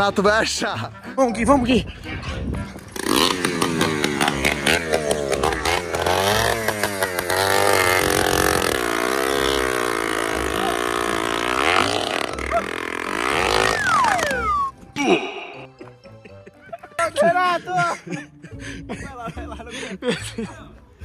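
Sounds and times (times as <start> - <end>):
small engine revving: 2.9 - 14.7
tone sliding down: 10.5 - 14.8.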